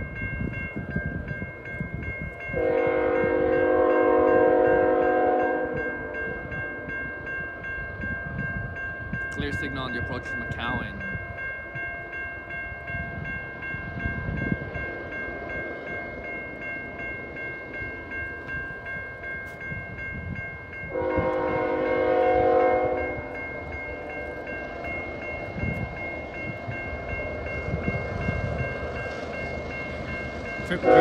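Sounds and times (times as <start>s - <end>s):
crossing warning bell ringing: 0.0s - 31.0s
locomotive air horn blast: 2.6s - 6.5s, 20.9s - 23.3s, 30.8s - 31.0s.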